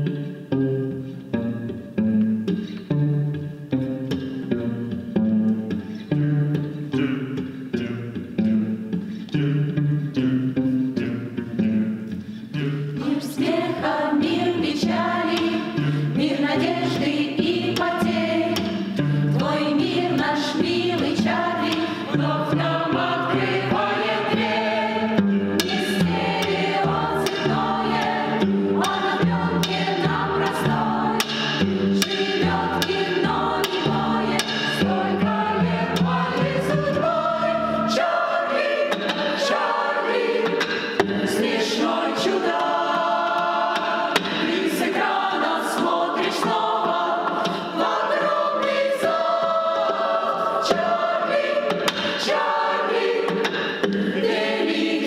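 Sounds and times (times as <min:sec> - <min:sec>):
cello: 0:00.0 - 0:55.0
mixed choir singing: 0:12.6 - 0:55.0.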